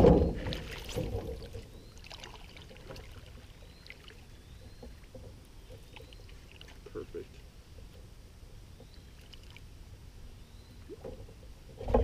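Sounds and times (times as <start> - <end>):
water lapping against boat hull: 0.0 - 10.0, 10.8 - 12.0.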